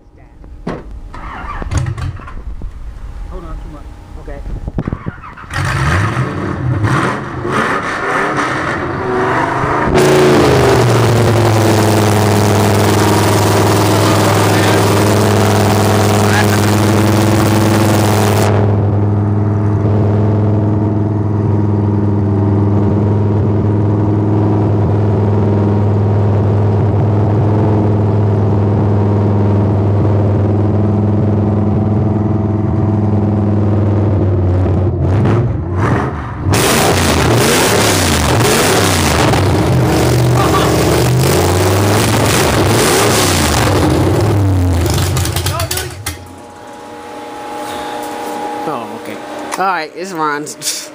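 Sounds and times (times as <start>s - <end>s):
engine idling: 9.9s - 34.8s, 38.1s - 50.9s.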